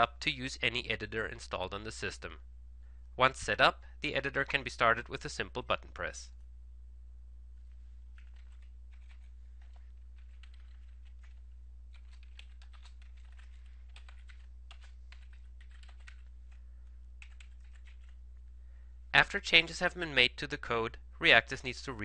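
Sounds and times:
low electrical hum: 0:00.0 - 0:22.0
computer keyboard typing: 0:08.1 - 0:16.6, 0:17.2 - 0:18.2.

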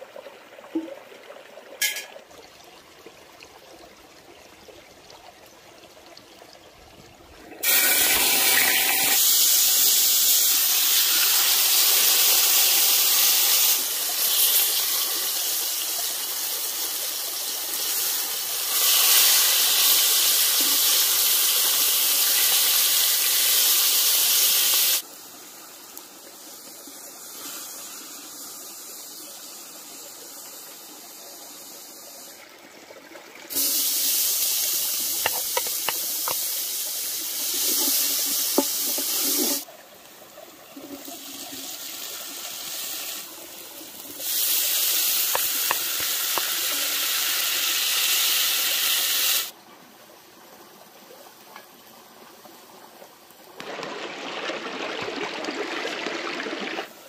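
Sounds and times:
chicken sizzling in hot oil: 0:07.6 - 0:25.1, 0:33.5 - 0:39.7, 0:41.2 - 0:43.3, 0:43.9 - 0:49.5.

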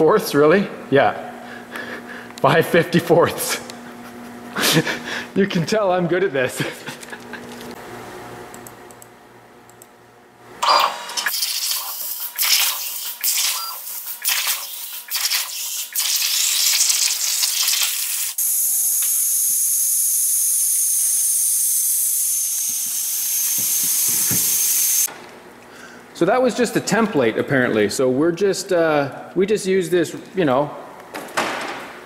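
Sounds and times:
plasma cutter hissing: 0:10.6 - 0:25.1.

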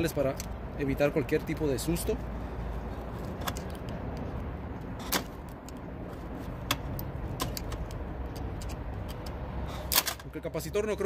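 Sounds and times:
screwdriver clicking on terminals: 0:06.6 - 0:10.2.

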